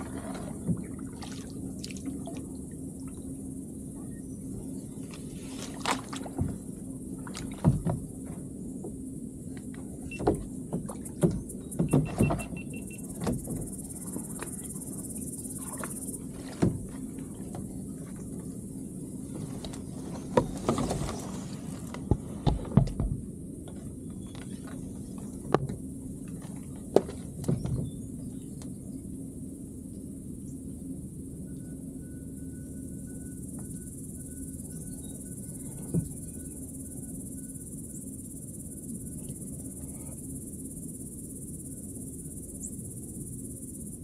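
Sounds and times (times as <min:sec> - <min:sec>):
reed stems scraping hull: 0:00.0 - 0:02.2, 0:05.0 - 0:08.6, 0:13.1 - 0:23.1
steady low hum: 0:00.0 - 0:44.0
paddle knocking on plastic hull: 0:07.3 - 0:08.4, 0:10.1 - 0:13.8, 0:22.0 - 0:24.5.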